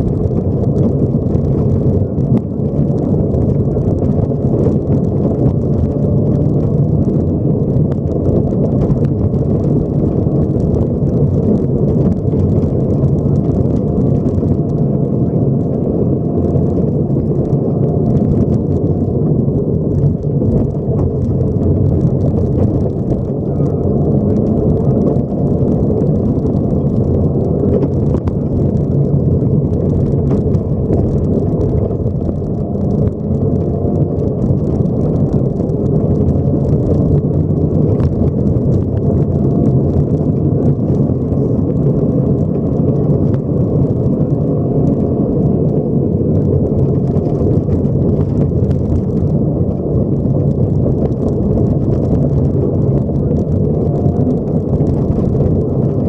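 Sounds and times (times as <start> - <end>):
car engine and road noise: 0.0 - 56.0.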